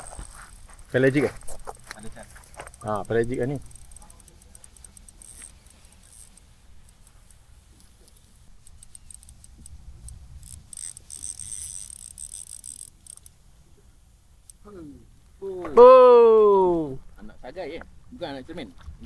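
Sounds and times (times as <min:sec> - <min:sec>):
fishing reel ticking: 0:00.0 - 0:13.4, 0:14.4 - 0:14.8
low steady rumble: 0:00.0 - 0:17.2.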